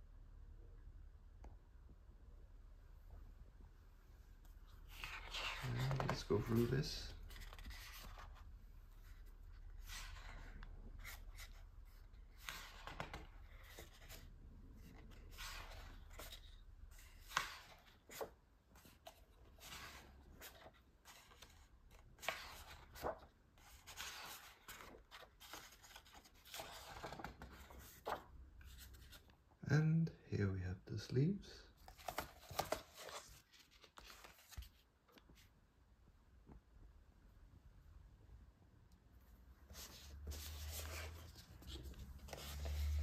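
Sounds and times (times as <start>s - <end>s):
paper pages turning: 4.8s - 29.3s, 31.8s - 35.5s, 39.7s - 43.0s.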